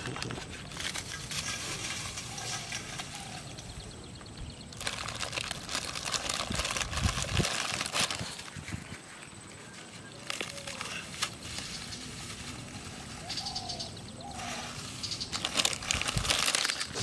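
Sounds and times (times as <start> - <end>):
plastic packet crinkling: 4.7 - 8.6, 10.2 - 11.7, 15.2 - 17.0.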